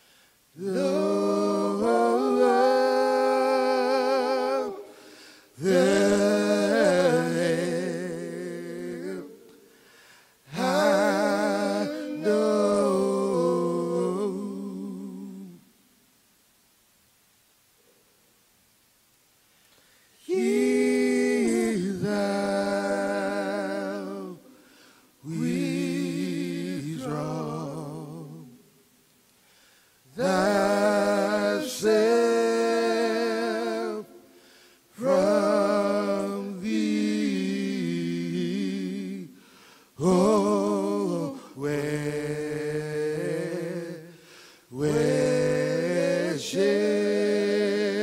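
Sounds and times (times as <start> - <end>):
male choir singing a hymn: 0.6 - 9.5, 10.4 - 15.6, 20.2 - 24.5, 25.2 - 28.5, 30.1 - 34.3, 34.9 - 39.4, 40.0 - 48.0.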